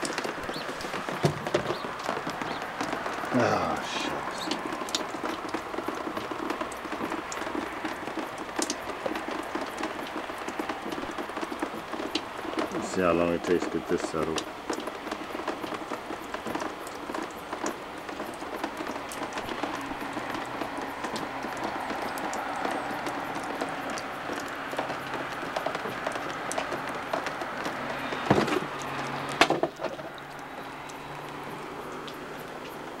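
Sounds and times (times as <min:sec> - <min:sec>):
knocks: 0:00.0 - 0:03.1
water dripping and trickling: 0:00.0 - 0:33.0.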